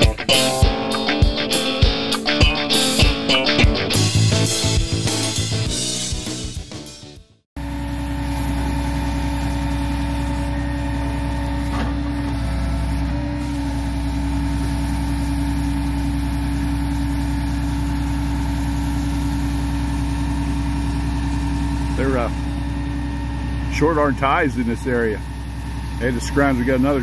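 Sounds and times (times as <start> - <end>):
truck engine idling: 7.6 - 27.0.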